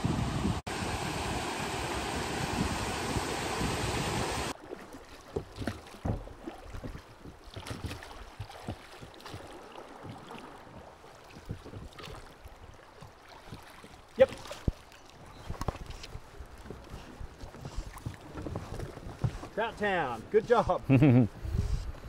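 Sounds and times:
knocks and splashes: 0.7s - 20.0s
water lapping against boat hull: 4.5s - 22.0s.

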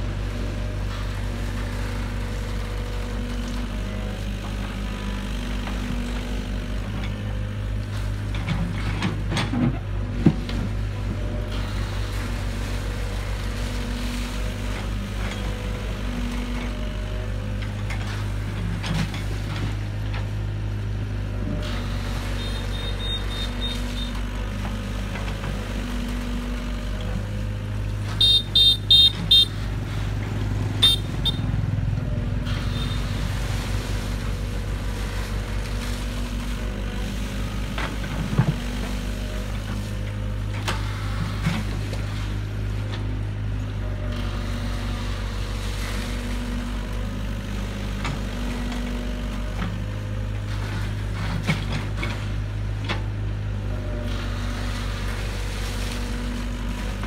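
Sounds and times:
excavator diesel engine running: 0.0s - 57.0s
short high-pitched beeps: 22.4s - 24.1s.

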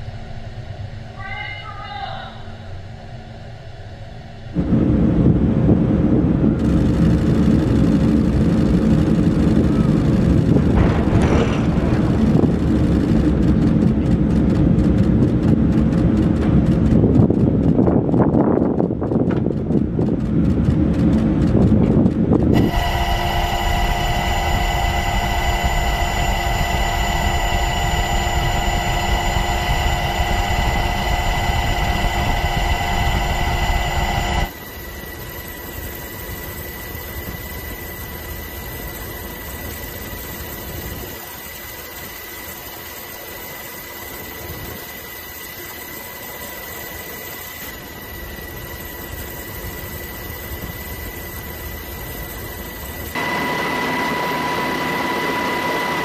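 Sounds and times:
aircraft engine drone: 0.0s - 56.0s
low rumble: 2.4s - 34.5s
high engine whines: 2.5s - 56.0s.

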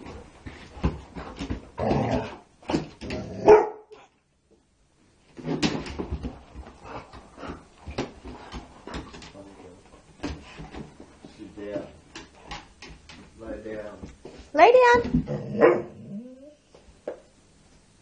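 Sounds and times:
dog barking: 3.4s - 4.0s, 15.6s - 16.0s.

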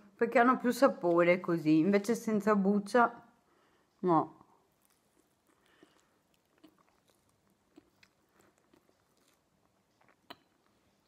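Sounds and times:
close-up chewing: 4.6s - 11.0s.

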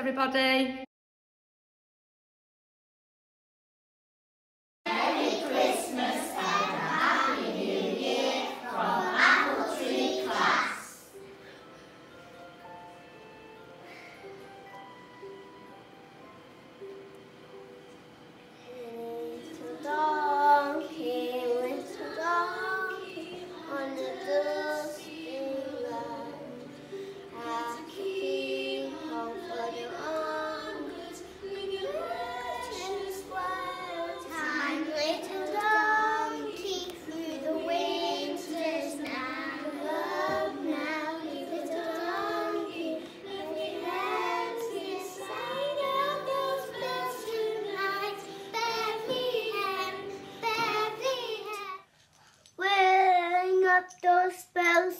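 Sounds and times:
young children singing: 4.9s - 11.2s, 18.5s - 51.9s
recorded backing music: 4.9s - 51.8s.

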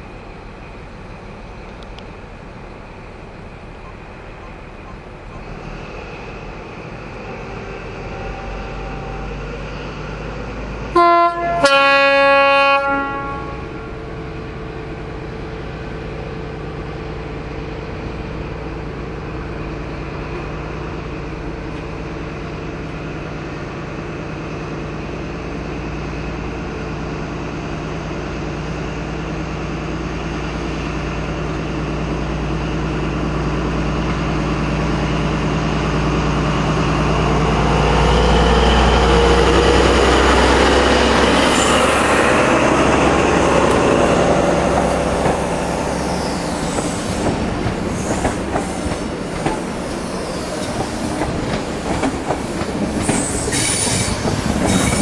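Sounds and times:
two-tone train horn: 7.4s - 9.4s, 10.9s - 13.8s.

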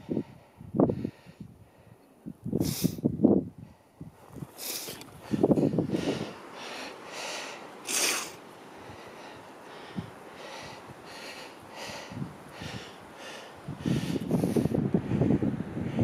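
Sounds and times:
person breathing hard: 0.0s - 2.0s, 3.6s - 16.0s.

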